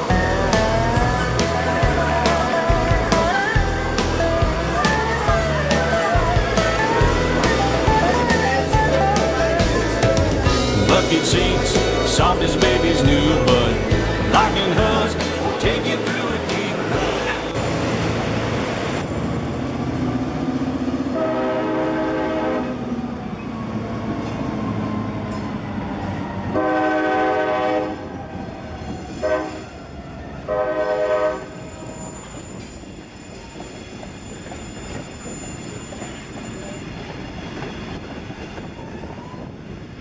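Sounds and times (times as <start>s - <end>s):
freight cars rumbling and clattering: 0.0s - 21.2s
locomotive horn: 21.1s - 23.0s, 26.5s - 28.2s, 29.1s - 29.8s, 30.4s - 31.9s.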